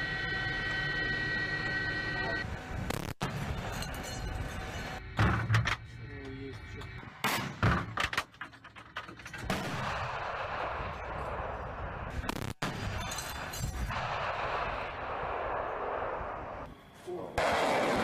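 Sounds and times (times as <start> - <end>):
rocket roar: 13.9 - 16.7, 17.4 - 18.0.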